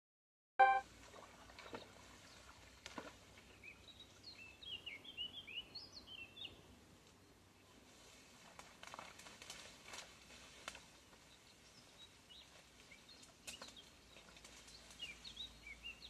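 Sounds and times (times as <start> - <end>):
songbird singing: 0.6 - 0.8, 3.4 - 7.8, 10.9 - 16.0
open-air ambience: 0.6 - 16.0.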